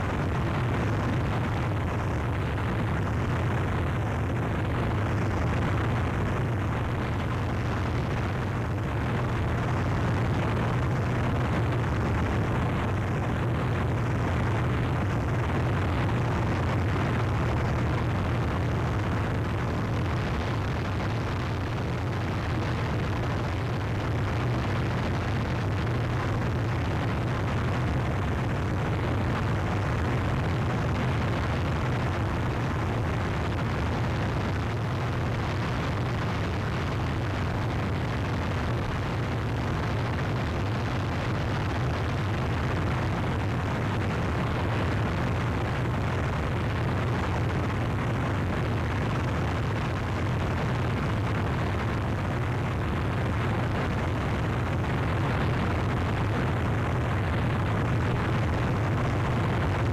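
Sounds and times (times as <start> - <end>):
dense static noise: 0.0 - 59.9
heavy low rumble: 0.0 - 59.9.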